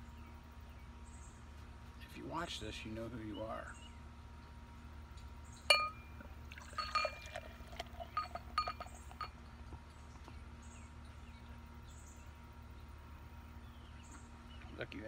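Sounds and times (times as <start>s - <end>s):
bottle clinking against glass: 5.7s - 9.4s
beer pouring into a glass: 6.2s - 9.3s.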